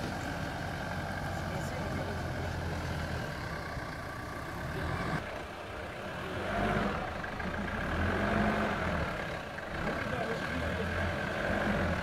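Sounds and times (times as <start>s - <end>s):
engine running at low speed: 0.0s - 12.0s.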